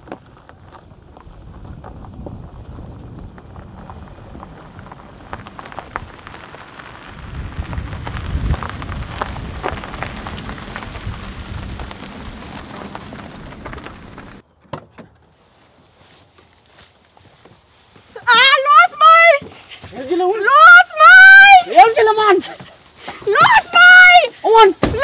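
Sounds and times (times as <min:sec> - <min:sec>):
dry grass crackling: 0:00.0 - 0:14.4, 0:15.3 - 0:25.0
wind buffeting microphone: 0:00.4 - 0:14.4.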